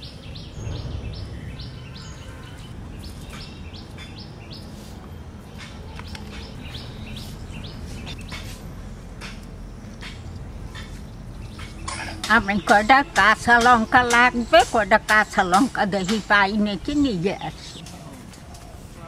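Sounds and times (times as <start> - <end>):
low background rumble: 0.0 - 17.8
small birds chirping: 0.0 - 19.0.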